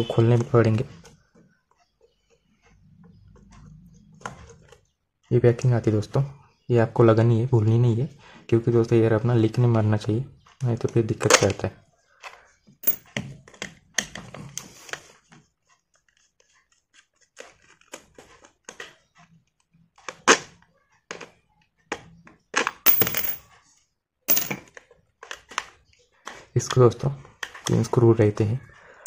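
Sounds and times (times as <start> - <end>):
metal tools clicking and scraping: 12.8 - 13.0, 22.6 - 23.5, 24.3 - 24.7.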